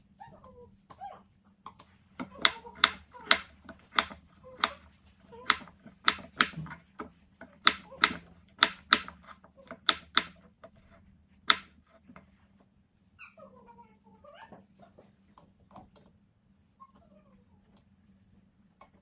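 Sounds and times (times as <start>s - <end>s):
knife cutting potatoes on board: 2.1s - 12.4s.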